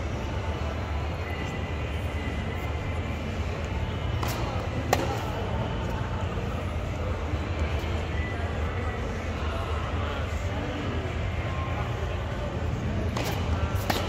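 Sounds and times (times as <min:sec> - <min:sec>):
indoor arena hum: 0:00.0 - 0:14.0
tennis racquet hitting ball: 0:13.1 - 0:14.0.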